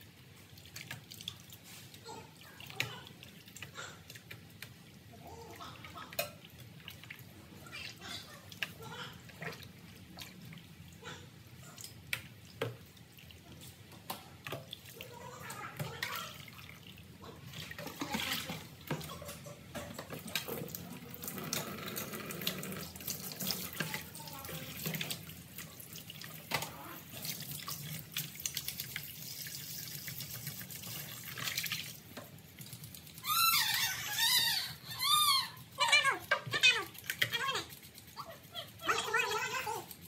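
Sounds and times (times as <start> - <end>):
tap water running into basin: 0.0 - 40.0
short high-pitched cries: 33.2 - 36.2.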